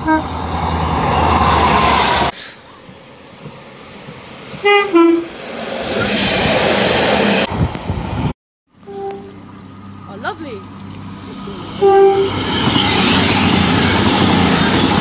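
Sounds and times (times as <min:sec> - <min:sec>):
train two-tone horn: 0:00.0 - 0:00.4, 0:04.6 - 0:05.3, 0:08.8 - 0:09.5, 0:11.8 - 0:12.6
diesel train running: 0:00.0 - 0:15.0
passing train noise: 0:00.0 - 0:15.0.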